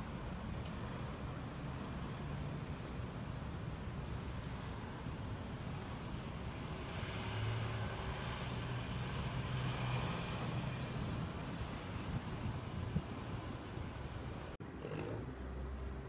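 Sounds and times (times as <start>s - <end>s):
traffic rumble: 0.0s - 16.0s
vehicle passing: 5.6s - 16.0s.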